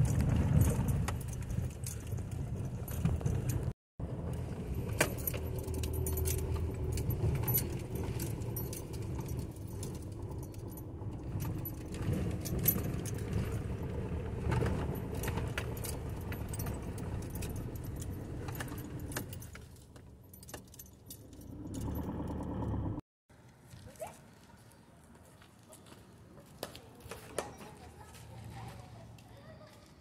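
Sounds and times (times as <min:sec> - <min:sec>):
tyre and engine rumble: 0:00.0 - 0:25.7
loose items jingling and rattling: 0:04.8 - 0:13.9, 0:14.5 - 0:22.2.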